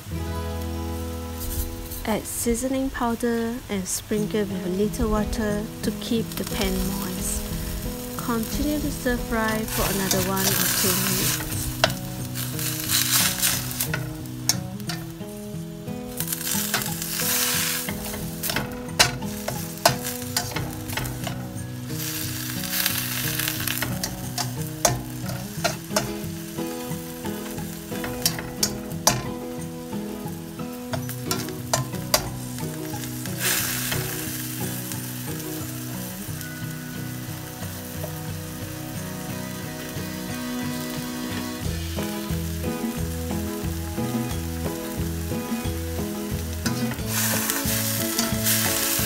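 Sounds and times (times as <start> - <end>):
greens sizzling in a wok: 0.0 - 49.0
spatula clacking and scraping wok: 6.4 - 36.2, 40.8 - 49.0.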